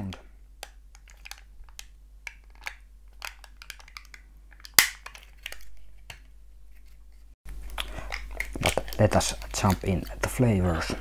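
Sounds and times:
plastic cups crackling and clicking: 0.0s - 6.9s, 7.5s - 11.0s
sharp plastic snap: 0.6s - 6.3s.

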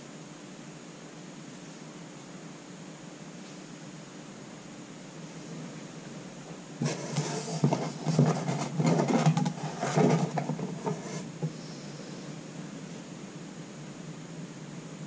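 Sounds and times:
steady hiss: 0.0s - 15.0s
cards rustling and clicking: 6.8s - 11.5s.

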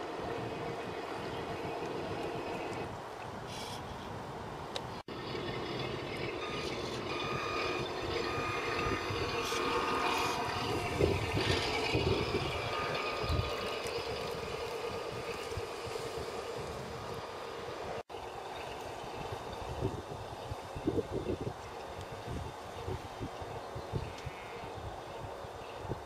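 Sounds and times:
small motor whining: 5.1s - 17.5s.

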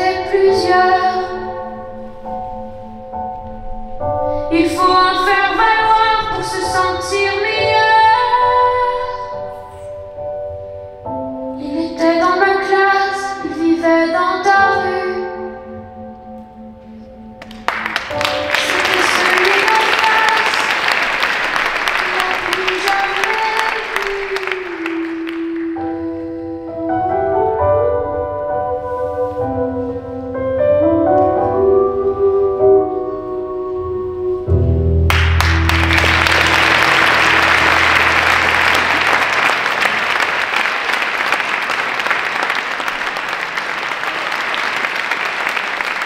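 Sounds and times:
audience applause: 17.4s - 25.8s, 35.1s - 46.0s.

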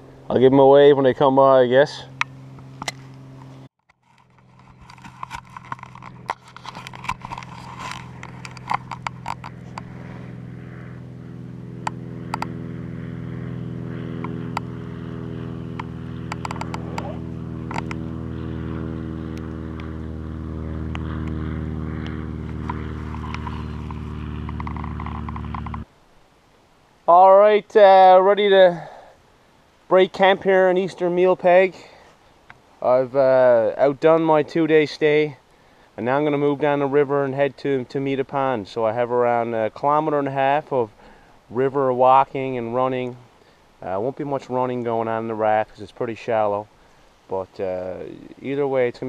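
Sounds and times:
propeller plane droning: 0.0s - 25.9s, 28.3s - 49.0s
sharp clicks: 15.7s - 17.1s, 17.7s - 18.0s, 22.0s - 25.9s.

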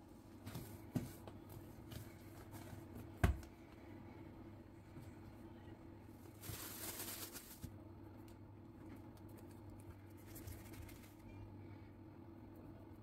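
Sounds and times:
low steady hum: 0.0s - 13.0s
soft taps and rustles: 0.4s - 3.6s.

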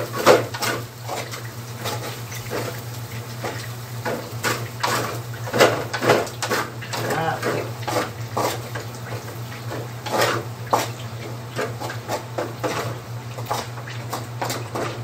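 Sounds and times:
spatula scraping metal wok: 9.7s - 11.0s.

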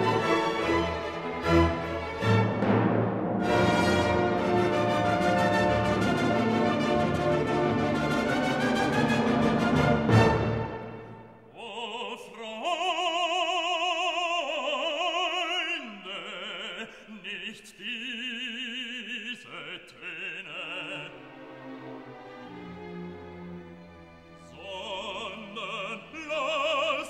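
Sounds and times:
operatic voice singing: 11.5s - 21.4s, 24.4s - 27.0s.

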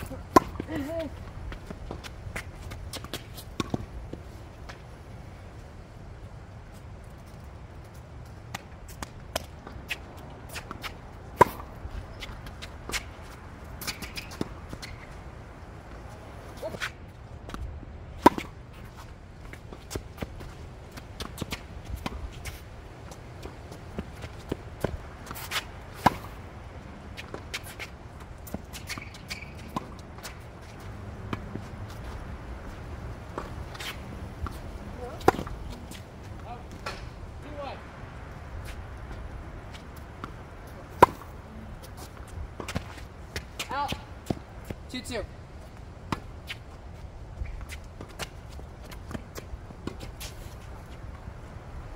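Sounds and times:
racket hitting tennis ball: 0.0s - 1.0s, 1.6s - 4.8s, 8.5s - 15.2s, 18.2s - 22.6s, 23.4s - 37.5s, 38.6s - 44.8s
footsteps and shoe scuffs on court: 0.0s - 5.8s, 6.6s - 51.8s.

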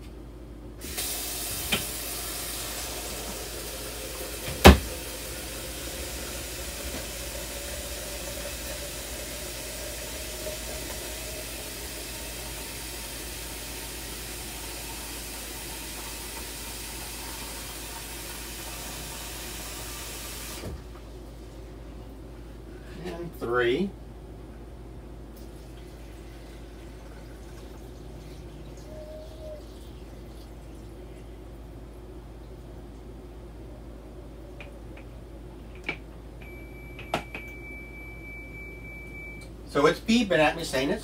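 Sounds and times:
tap water filling a pitcher: 0.8s - 21.1s, 25.4s - 31.0s.

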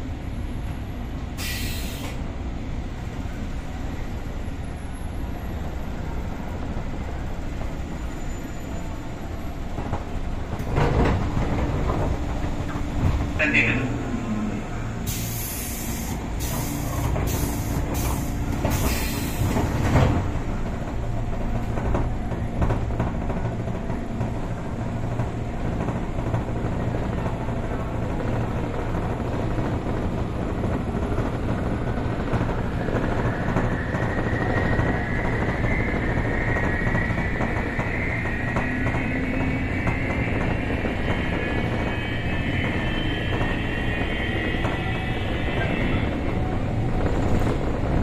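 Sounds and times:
air hissing bursts: 1.4s - 2.2s, 15.1s - 19.6s.

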